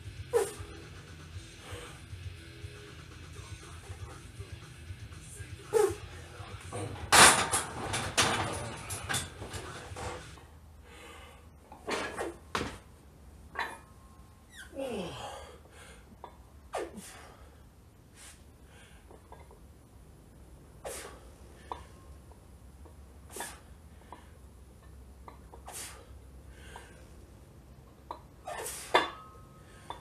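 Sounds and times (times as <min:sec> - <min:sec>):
sharp forceful breaths: 0:10.8 - 0:11.6, 0:16.8 - 0:19.1, 0:25.6 - 0:27.2
person grunting: 0:14.7 - 0:15.6.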